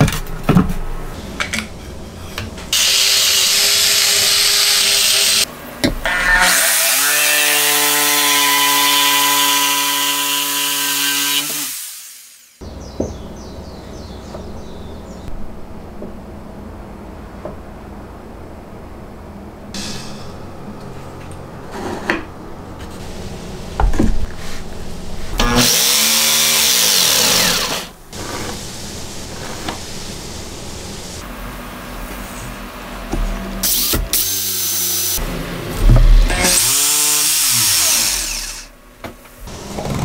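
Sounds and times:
power tool motor spinning: 36.2s - 38.7s.

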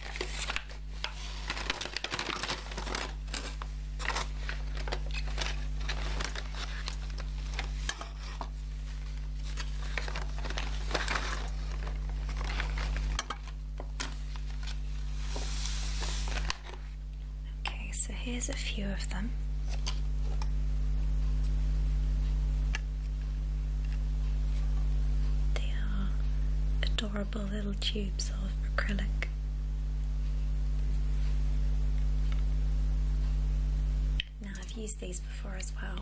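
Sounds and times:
paper bag rustling: 0.0s - 16.9s.

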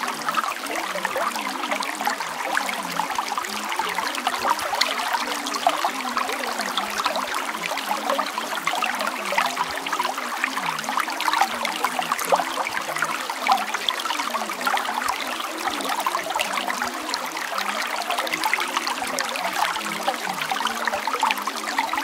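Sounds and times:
babbling stream: 0.0s - 22.0s.

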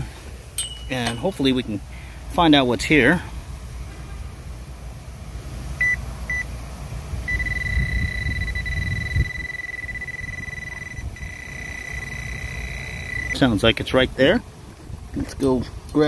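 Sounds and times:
metal detector beeping: 5.8s - 6.5s, 7.3s - 13.5s
metal detector steady tone: 5.8s - 6.5s, 7.2s - 13.6s.

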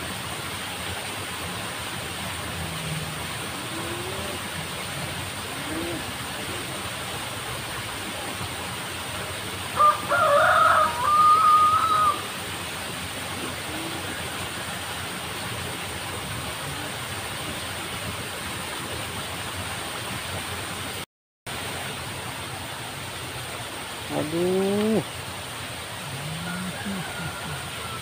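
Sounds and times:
rooster crowing: 9.8s - 12.2s, 26.2s - 28.0s.

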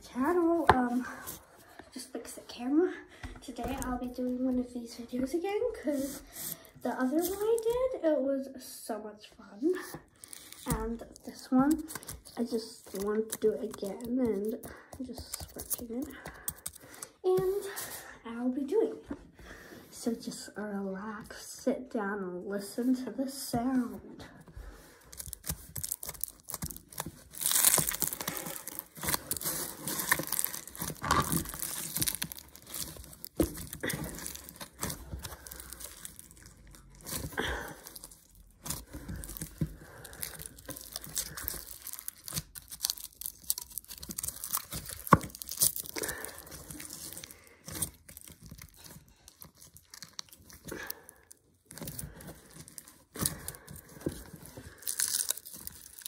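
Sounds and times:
aluminium foil crinkling and tearing: 6.4s - 7.9s, 10.1s - 17.1s, 25.1s - 56.0s.

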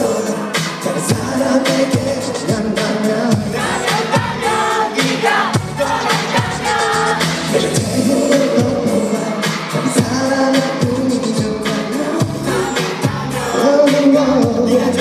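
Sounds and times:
live pop song: 0.0s - 15.0s
person singing: 0.0s - 15.0s
deep kick drum: 5.6s - 5.8s.

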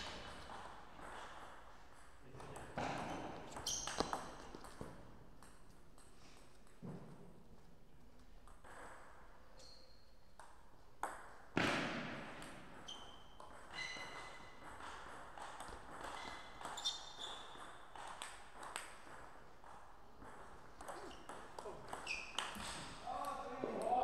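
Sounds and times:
table tennis ball pinging: 0.2s - 7.1s, 10.4s - 24.0s.

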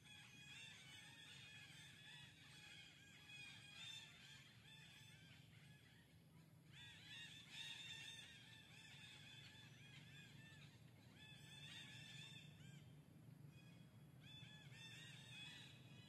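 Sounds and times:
chorus of high chirping calls: 0.2s - 6.1s, 6.8s - 12.9s, 13.6s - 16.0s.

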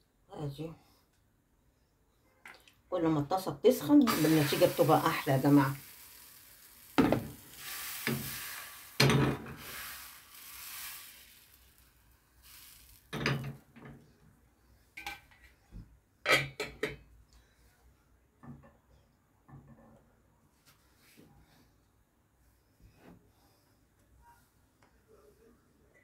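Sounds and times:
batter sizzling in frying pan: 3.8s - 13.7s.

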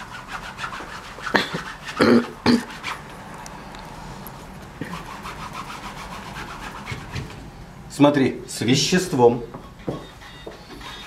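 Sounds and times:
rag rubbing on canvas: 0.0s - 3.1s, 4.8s - 7.4s, 10.7s - 11.0s.

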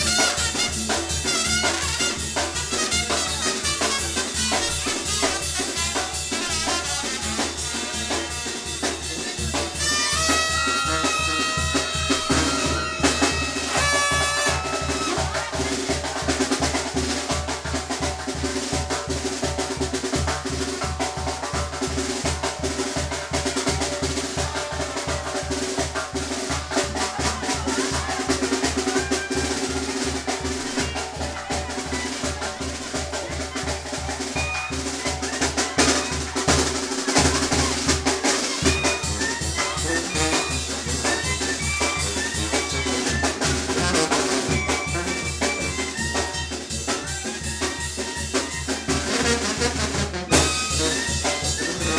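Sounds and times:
dance band music: 0.0s - 15.8s, 26.2s - 51.9s
pitched melody: 9.8s - 15.1s, 33.8s - 51.9s.

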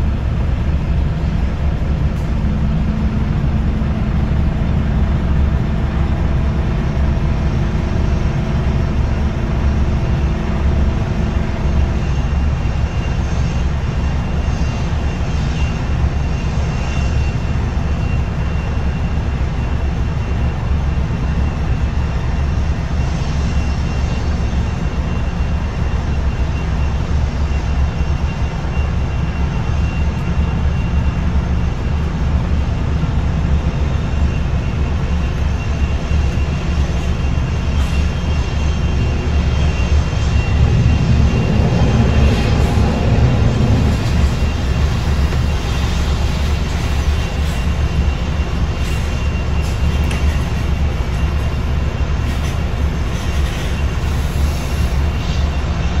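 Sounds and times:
aircraft engines rumbling: 0.0s - 56.0s
high engine whine: 0.0s - 56.0s.

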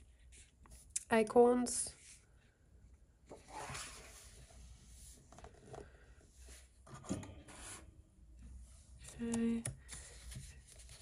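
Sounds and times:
soft paper swishes: 3.3s - 5.4s.

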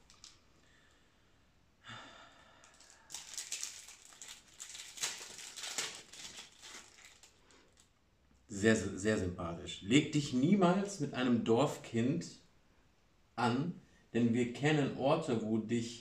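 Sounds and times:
packaging crinkling and rustling: 0.0s - 0.4s, 2.6s - 8.0s.

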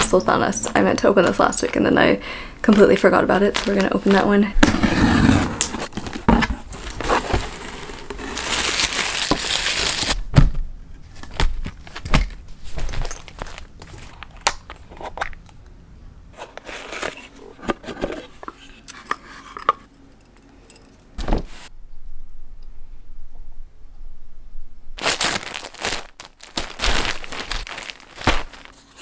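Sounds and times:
wrapping rustling in box: 0.2s - 4.4s, 5.6s - 10.2s, 25.0s - 29.0s.

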